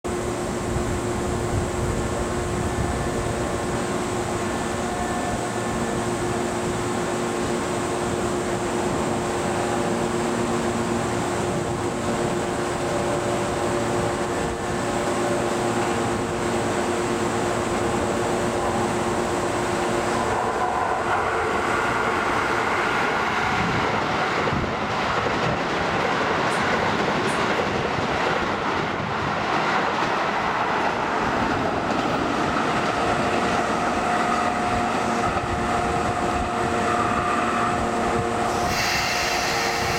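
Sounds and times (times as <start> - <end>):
electrical hum of standing train: 0.1 - 39.9
train wheels rushing on rails: 0.1 - 39.9.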